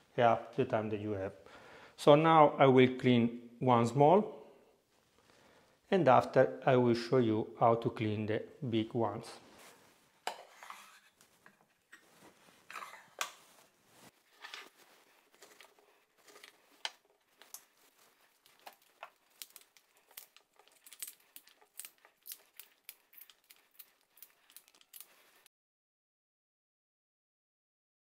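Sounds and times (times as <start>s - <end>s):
artichoke leaves snapping: 18.4s - 25.3s.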